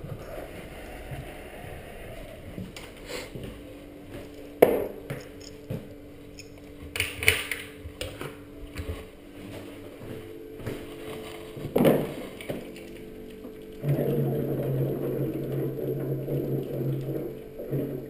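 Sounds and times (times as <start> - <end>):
footsteps: 0.0 - 5.9, 8.8 - 12.7.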